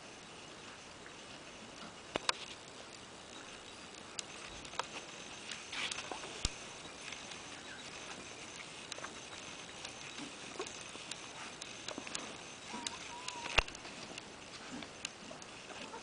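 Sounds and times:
faint squeak: 12.6s - 13.7s.

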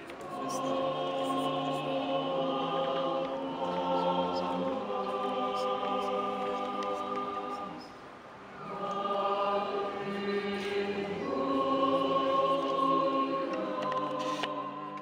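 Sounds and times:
church choir singing a hymn: 0.0s - 15.0s.

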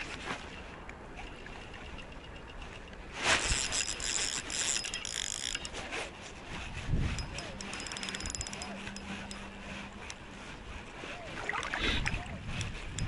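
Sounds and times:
fishing reel clicking and whirring: 1.2s - 10.2s, 12.6s - 13.0s.

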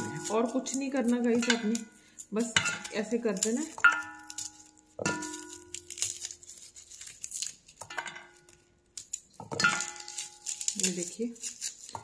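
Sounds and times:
cloves clinking into metal bowl: 0.0s - 6.2s, 9.4s - 12.0s
garlic skins crackling and tearing: 0.0s - 12.0s.

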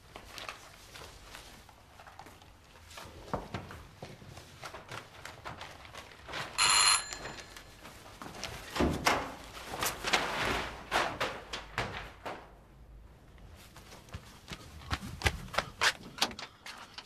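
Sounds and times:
rustling and shuffling paper: 0.0s - 12.6s
electric bell ringing: 6.6s - 7.8s.

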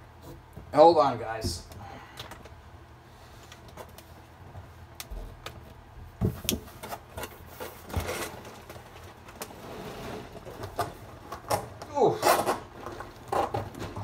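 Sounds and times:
cardboard boxes knocking and thumping: 6.0s - 8.4s
cardboard scraping and rustling: 6.2s - 11.2s.

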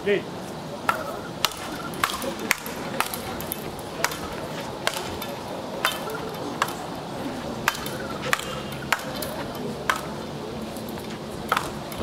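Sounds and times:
faint voices: 0.0s - 12.0s
paddles striking ball: 0.9s - 6.8s, 7.6s - 10.2s, 11.5s - 12.0s.

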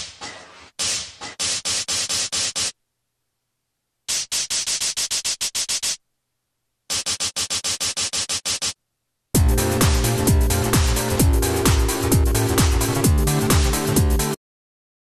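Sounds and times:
synthesizer staccato buzzy notes: 9.4s - 14.4s.

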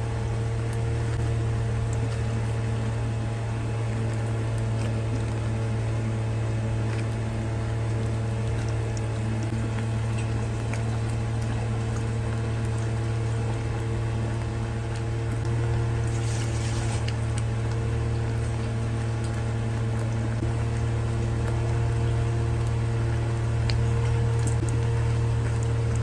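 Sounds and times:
gravy bubbling in a pan: 0.0s - 26.0s
steady low hum: 0.0s - 26.0s
hissing splutter from pan: 16.0s - 17.1s
spatula scraping and stirring: 16.0s - 17.2s.

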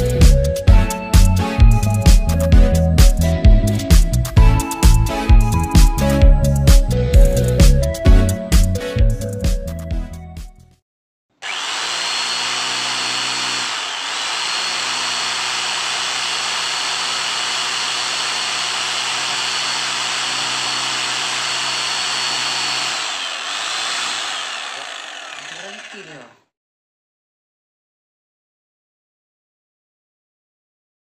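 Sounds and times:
electric demolition hammer running: 11.4s - 26.4s
motor winding down: 11.4s - 26.4s.

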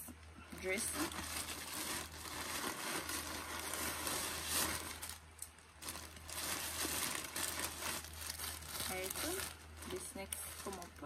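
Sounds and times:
plastic bag crinkling: 0.6s - 11.0s.

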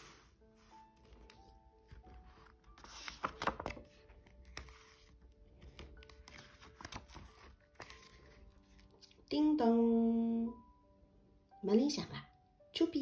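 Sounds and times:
book pages turning and rustling: 0.0s - 9.3s
quiet background music: 0.0s - 13.0s.

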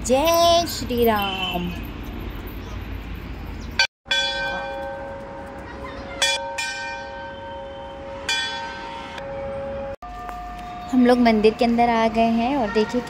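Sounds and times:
temple bell ringing: 4.1s - 13.0s.

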